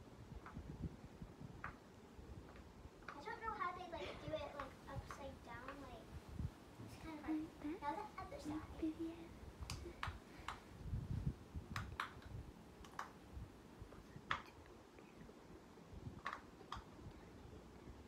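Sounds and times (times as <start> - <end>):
sharp clicks: 11.7 - 13.2, 16.2 - 17.1.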